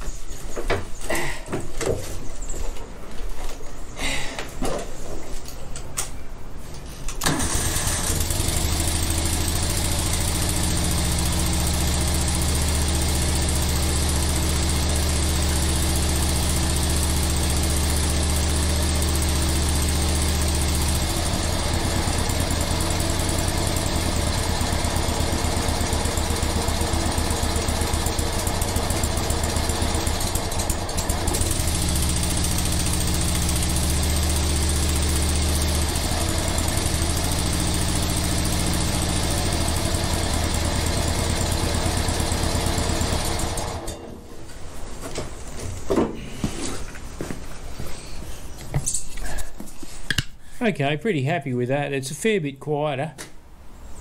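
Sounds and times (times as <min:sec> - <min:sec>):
ride-on mower engine running: 0:07.2 - 0:44.0.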